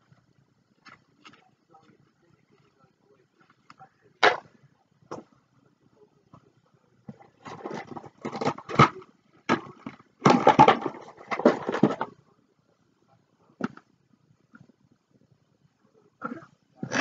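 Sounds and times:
craft supplies rustling and knocking: 7.1s - 12.2s.

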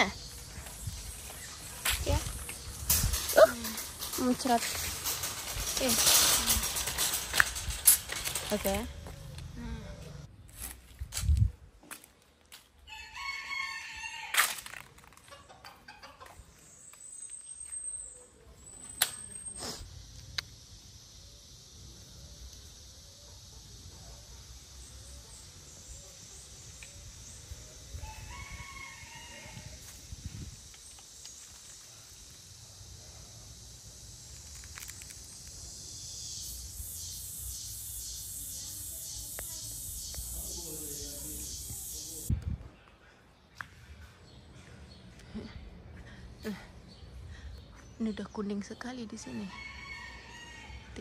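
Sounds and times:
insects hissing: 0.0s - 10.3s, 19.2s - 42.3s
rooster crowing: 12.9s - 14.4s, 28.0s - 29.8s, 49.2s - 51.0s.

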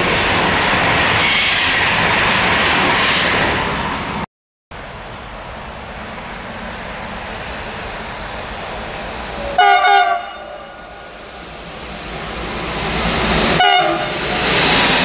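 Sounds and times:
approaching train hiss: 0.0s - 15.0s
train horn blast: 9.5s - 11.1s, 13.5s - 14.4s.

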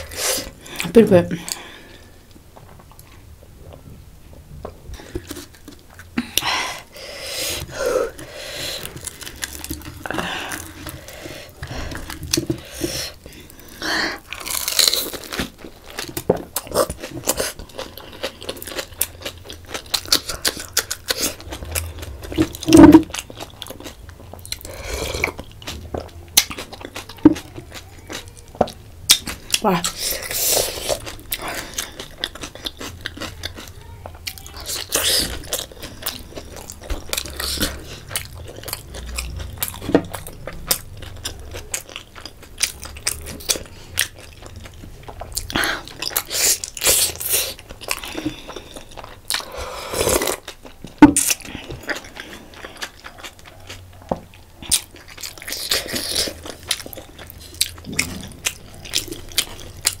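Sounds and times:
biting and chewing: 7.6s - 60.0s.

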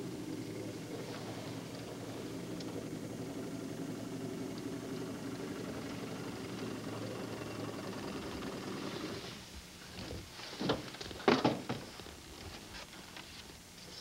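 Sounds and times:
small boat motor running: 0.0s - 9.3s.

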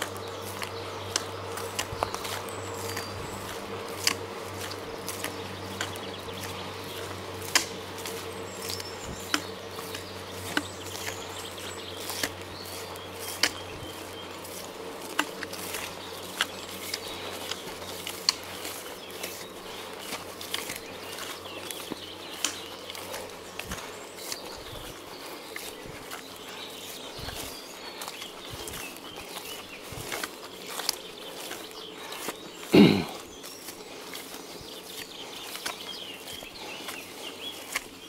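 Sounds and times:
faint birds chirping: 0.0s - 38.0s
footsteps walking uphill: 0.0s - 38.0s.

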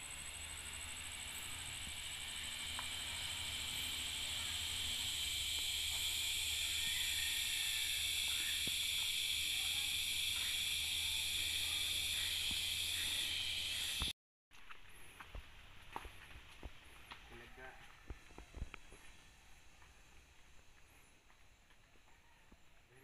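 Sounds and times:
insects droning: 0.0s - 14.1s.

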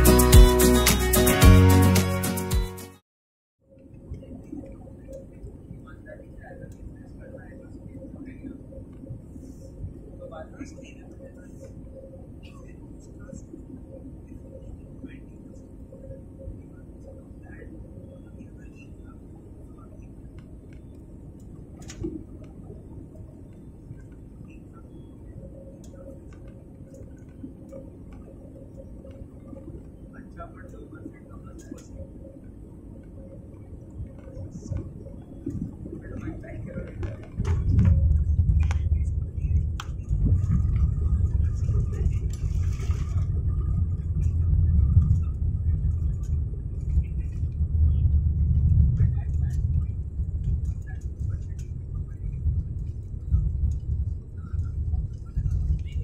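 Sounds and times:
airliner cabin rumble: 3.8s - 56.0s
faint clicks: 25.6s - 32.0s.

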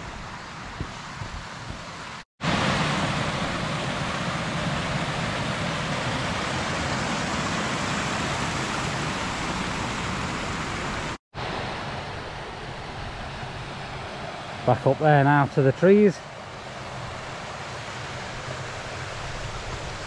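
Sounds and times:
fast-flowing stream water: 2.4s - 12.0s.

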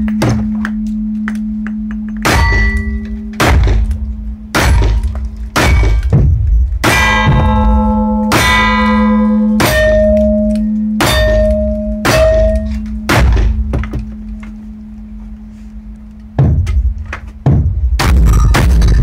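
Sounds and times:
steel targets clanging: 1.8s - 14.4s.

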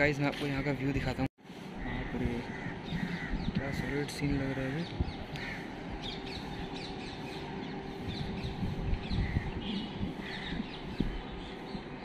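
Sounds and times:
birds chirping: 0.0s - 12.0s
low background rumble: 1.6s - 12.0s
crows cawing: 1.8s - 6.8s, 9.1s - 11.1s.

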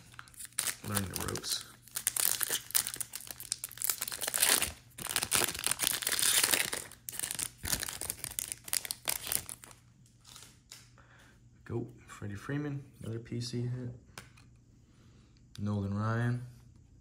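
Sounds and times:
foil wrapper crinkling and tearing: 0.0s - 10.6s.

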